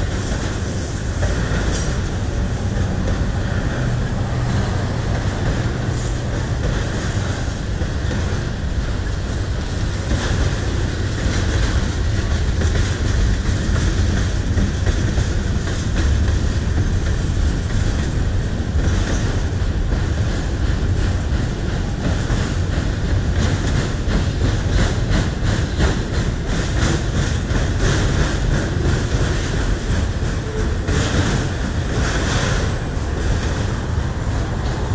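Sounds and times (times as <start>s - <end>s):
train wheels rumbling on track: 0.0s - 34.9s
wheels clacking over rail joints: 0.0s - 34.9s.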